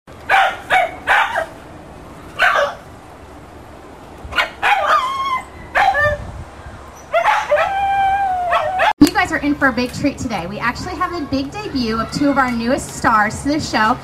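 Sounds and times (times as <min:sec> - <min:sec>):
dogs yelping: 0:00.3 - 0:02.9, 0:04.3 - 0:06.3, 0:06.9 - 0:09.0
dogs howling: 0:04.4 - 0:06.2, 0:07.0 - 0:09.0.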